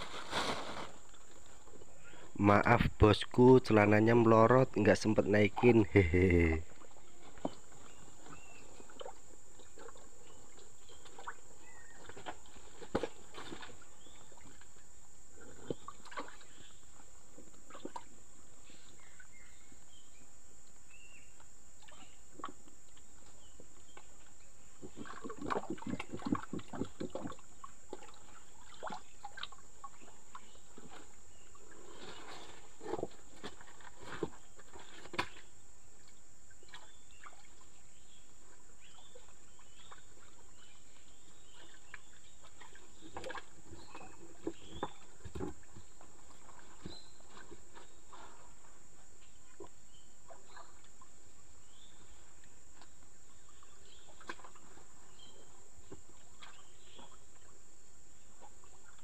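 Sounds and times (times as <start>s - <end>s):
rustling: 0.0s - 1.9s.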